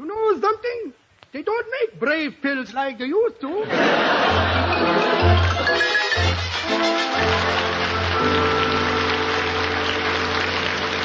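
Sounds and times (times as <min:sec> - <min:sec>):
orchestra playing held chords: 0:04.3 - 0:11.0.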